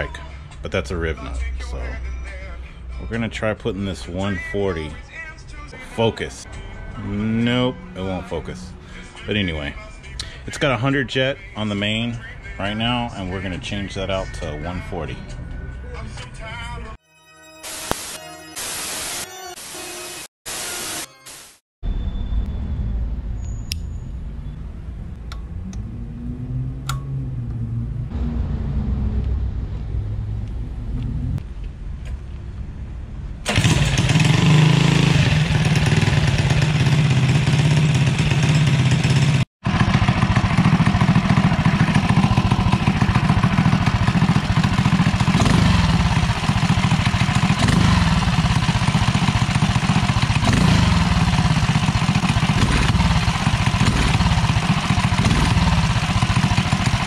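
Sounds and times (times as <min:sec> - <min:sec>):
small engine revving: 0:33.5 - 0:57.0.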